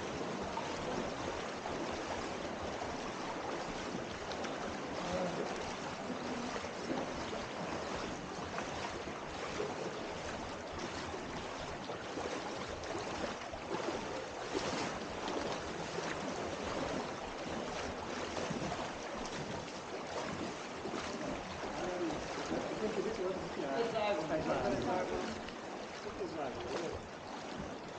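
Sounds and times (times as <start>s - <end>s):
people wading through water: 0.0s - 27.9s
river water flowing: 0.0s - 27.9s.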